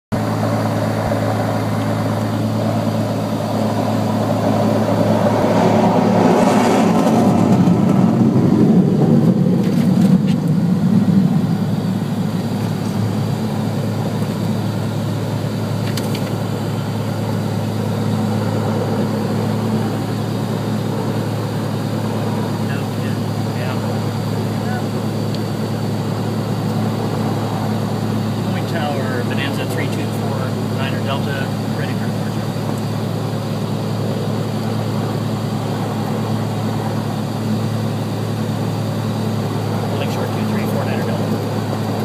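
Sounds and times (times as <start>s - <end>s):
fighter jet roaring: 0.1s - 42.0s
propeller plane engine idling: 0.1s - 42.0s.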